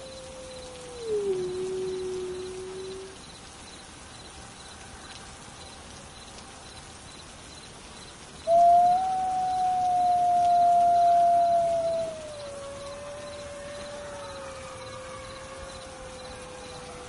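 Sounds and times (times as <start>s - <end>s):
wolves howling: 0.0s - 3.2s, 8.5s - 17.0s.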